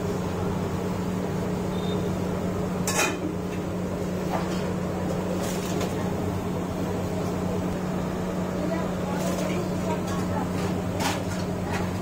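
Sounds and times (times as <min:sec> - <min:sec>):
food deep-frying in oil: 0:00.0 - 0:12.0
metal utensil clanking on iron pan: 0:02.8 - 0:03.6.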